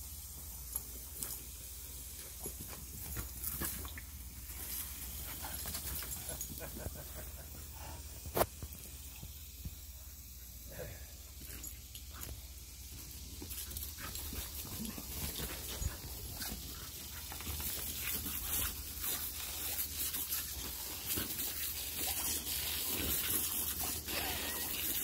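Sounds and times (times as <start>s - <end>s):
water spray hissing: 0.0s - 25.0s.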